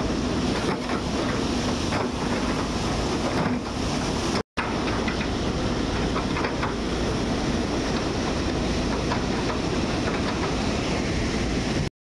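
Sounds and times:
ocean surf breaking: 0:00.0 - 0:11.9.

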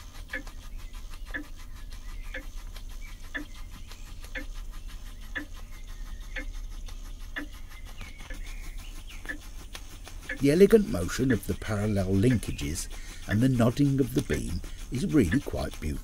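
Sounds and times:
constant low hum: 0:00.0 - 0:16.0
steam engine beating: 0:09.2 - 0:16.0.

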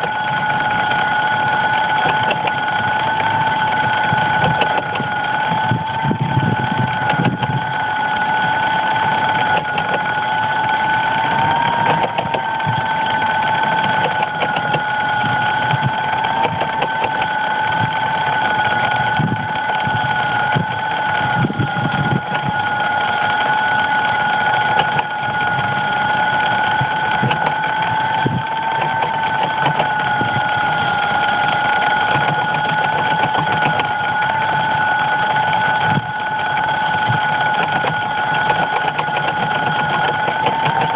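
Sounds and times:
drone motors whining: 0:00.0 - 0:40.9.

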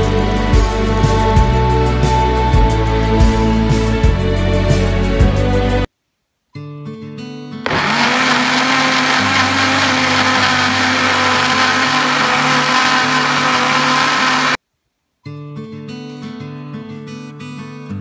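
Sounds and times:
electric blender motor running: 0:07.7 - 0:14.6.

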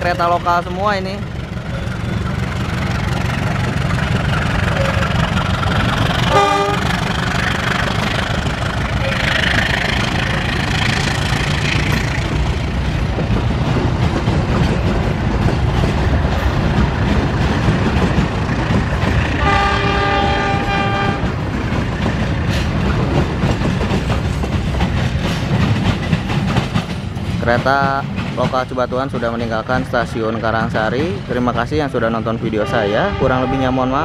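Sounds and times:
train rumbling with wheel clatter: 0:00.0 - 0:34.0
train horn: 0:06.3 - 0:07.0, 0:19.4 - 0:21.4, 0:32.6 - 0:34.0.

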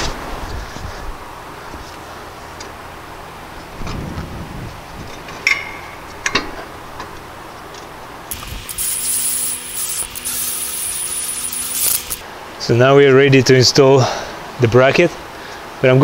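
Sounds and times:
metal parts clinking: 0:08.3 - 0:12.2.

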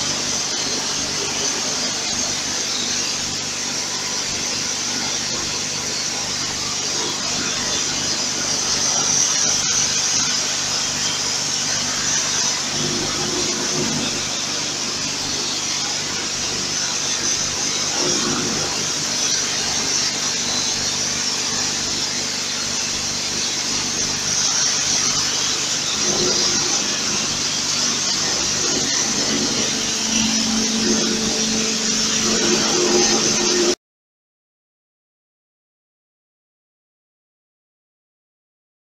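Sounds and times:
water spray hissing on steel: 0:00.0 - 0:33.8
low hum: 0:26.0 - 0:33.8.

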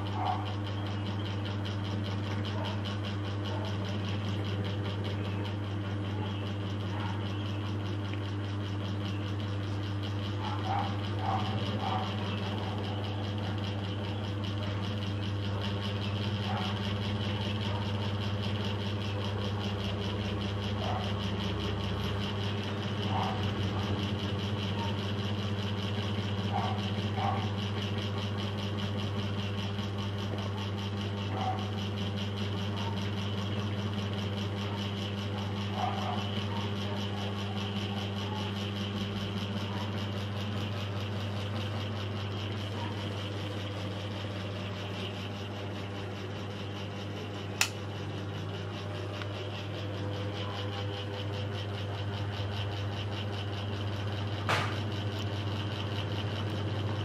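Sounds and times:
ceiling fan humming: 0:00.0 - 0:57.0
sharp click: 0:47.6 - 0:47.9.

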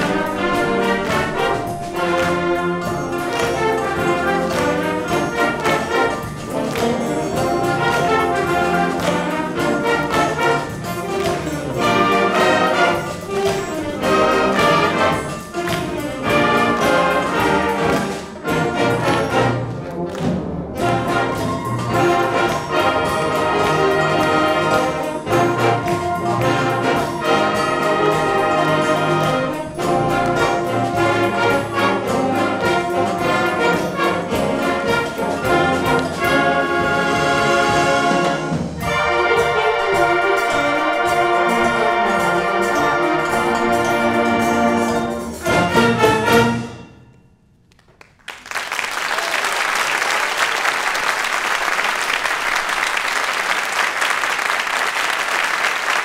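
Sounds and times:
audience applauding: 0:00.0 - 0:29.5, 0:47.7 - 0:56.0
concert band playing: 0:00.0 - 0:47.0.

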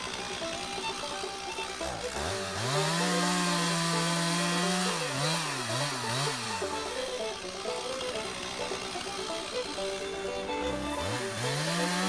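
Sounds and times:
chainsaw revving and idling: 0:00.0 - 0:12.0
background music: 0:02.0 - 0:12.0.

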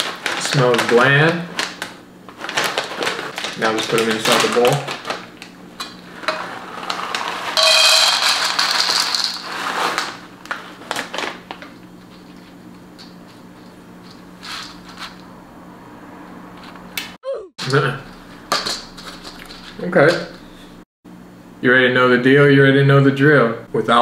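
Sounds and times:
cereal pieces clicking: 0:00.0 - 0:05.2, 0:08.2 - 0:11.4
plastic bag crinkling: 0:00.0 - 0:07.6, 0:08.2 - 0:12.6
cereal pouring into glass bowl: 0:06.3 - 0:10.2.

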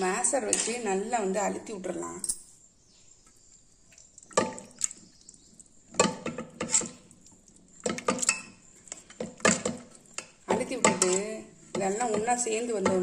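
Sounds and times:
wooden masher squelching in pot: 0:03.3 - 0:13.0.

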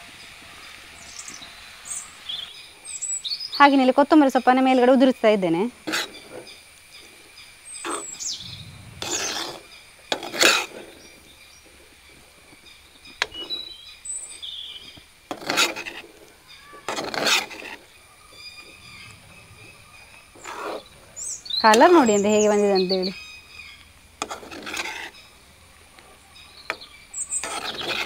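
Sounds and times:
faint birds chirping: 0:00.0 - 0:28.0
steel spatula scraping metal pan: 0:15.3 - 0:16.1, 0:16.8 - 0:18.6, 0:24.2 - 0:25.3, 0:27.2 - 0:28.0.

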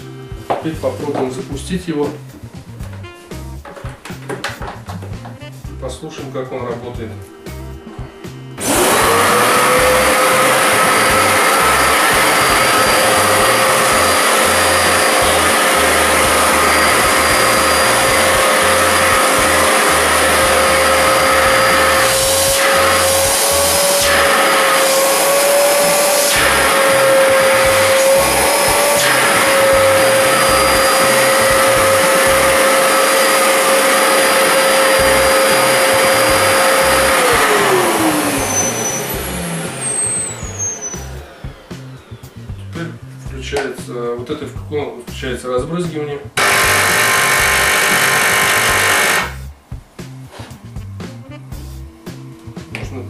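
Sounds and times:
suction turbine whining: 0:07.8 - 0:43.8, 0:46.4 - 0:49.7.

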